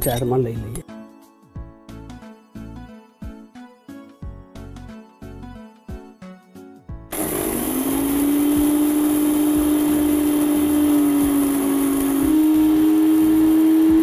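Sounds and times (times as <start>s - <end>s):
mixer grinder motor grinding seeds: 7.1s - 14.0s.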